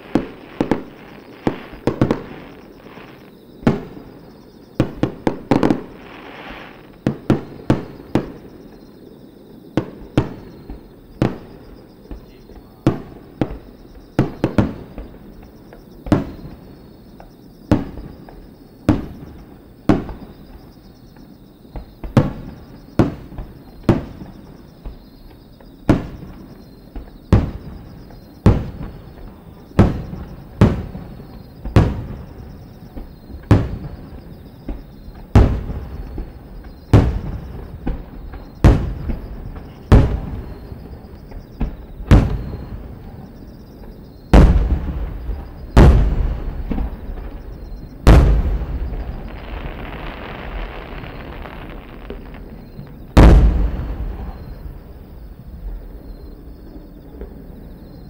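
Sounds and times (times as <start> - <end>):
firework shells booming: 0.0 - 8.9, 21.7 - 56.0.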